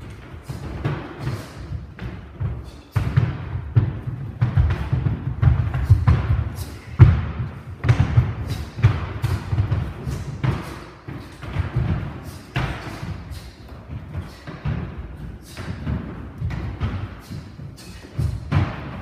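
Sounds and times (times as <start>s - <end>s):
bare feet stamping on wooden floor: 0.0s - 19.0s
slaps of kicks and strikes: 3.0s - 10.8s.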